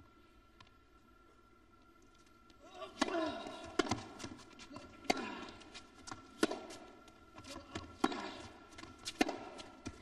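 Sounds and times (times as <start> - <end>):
racket striking tennis ball: 2.9 - 10.0
ball bouncing: 3.0 - 5.3, 6.1 - 6.8, 7.5 - 10.0.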